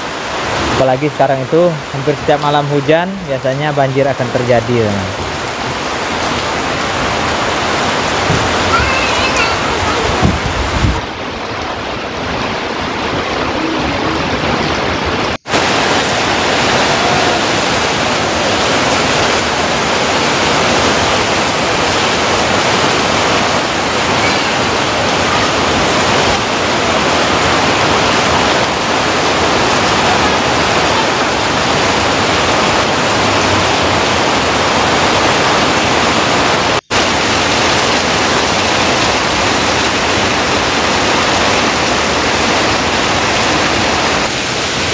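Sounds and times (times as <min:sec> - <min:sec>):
heavy rain pouring: 0:00.0 - 0:44.9
rushing water: 0:00.0 - 0:44.9.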